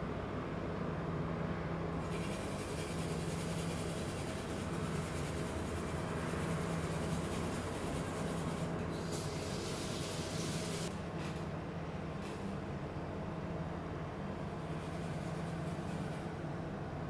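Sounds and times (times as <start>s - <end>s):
steady low hum: 0.0s - 17.0s
hiss: 8.9s - 10.9s.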